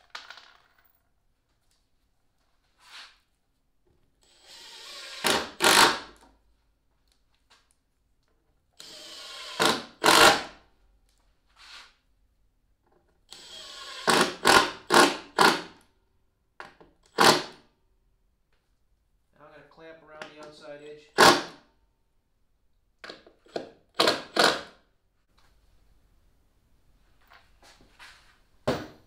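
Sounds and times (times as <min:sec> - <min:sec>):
cordless driver running screws: 0:04.2 - 0:06.0, 0:08.8 - 0:10.5, 0:13.3 - 0:15.1.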